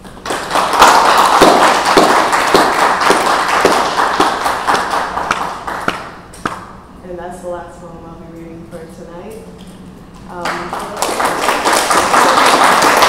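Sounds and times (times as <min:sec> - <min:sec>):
audience applauding: 0:00.0 - 0:06.2, 0:10.4 - 0:13.0.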